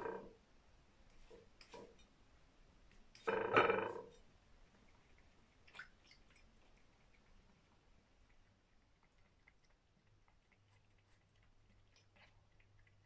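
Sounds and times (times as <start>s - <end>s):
cat lapping water: 4.5s - 13.0s.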